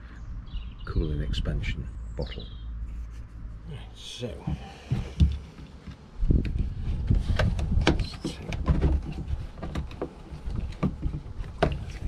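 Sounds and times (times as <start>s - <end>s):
clicks and knocks on plastic bottle: 7.2s - 12.0s.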